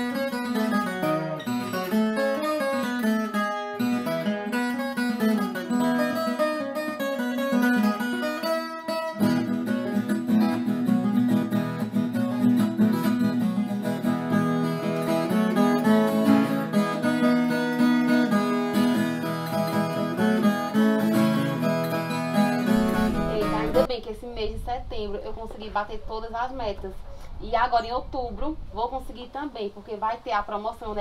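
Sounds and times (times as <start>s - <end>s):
acoustic guitar music: 0.0s - 24.0s.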